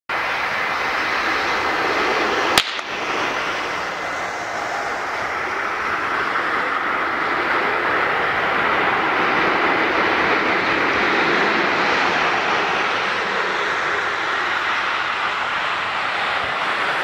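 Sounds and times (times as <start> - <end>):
jet engines rushing whine: 0.1 - 17.0
sharp click: 2.6 - 2.9.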